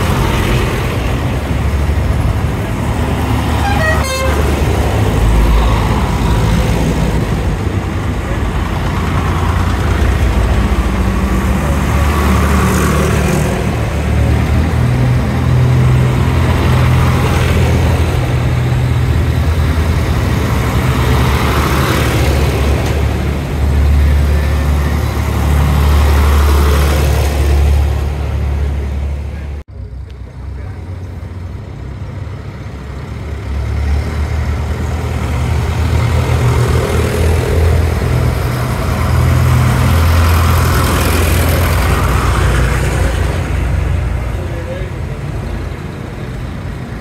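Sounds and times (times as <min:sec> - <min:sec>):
tractor engines chugging: 0:00.0 - 0:47.0
horn toot: 0:03.5 - 0:04.8.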